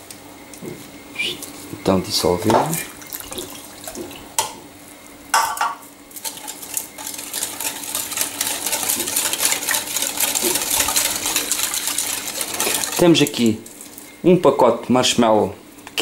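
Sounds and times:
whisk clattering against bowl: 0:06.2 - 0:13.6.

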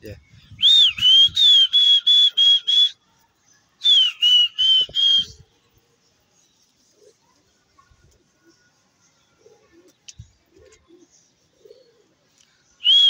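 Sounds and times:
shrill whistle blasts: 0:00.6 - 0:03.0, 0:03.8 - 0:05.4.

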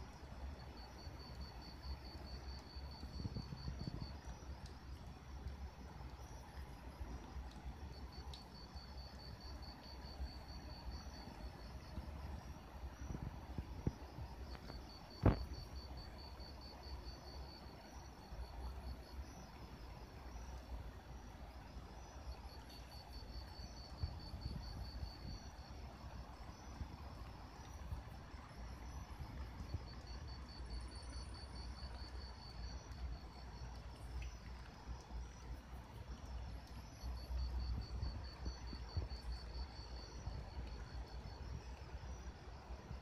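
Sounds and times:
faint low rumble: 0:00.0 - 0:43.0
insects trilling: 0:00.1 - 0:06.6, 0:07.9 - 0:43.0.

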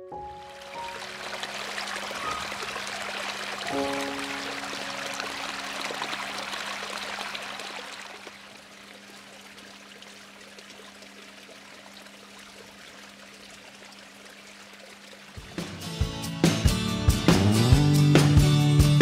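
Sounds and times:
water splashing down spillway: 0:00.4 - 0:15.6.

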